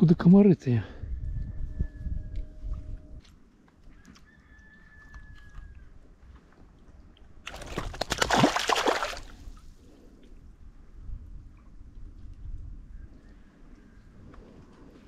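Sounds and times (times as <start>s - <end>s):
river water splashing: 7.4s - 9.5s.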